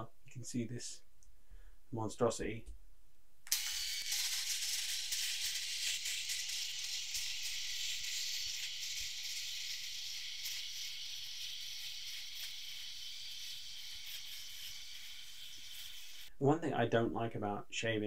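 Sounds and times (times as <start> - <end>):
electric shaver hissing: 3.5 - 16.3.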